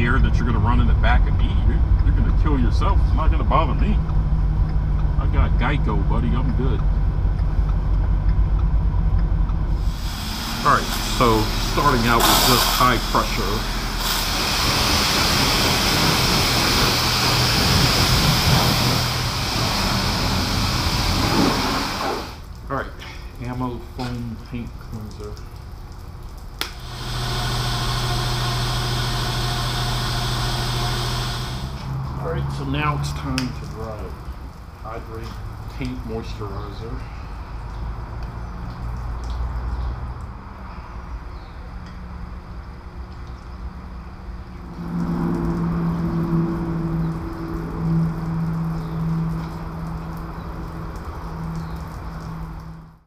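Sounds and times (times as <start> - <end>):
steady low rumble: 0.0 - 36.4, 44.4 - 53.0
low pump hum: 0.0 - 39.5, 44.3 - 53.0
pressure washer spraying water: 9.7 - 22.5, 26.7 - 32.1
even hiss: 9.7 - 24.2, 26.6 - 34.2.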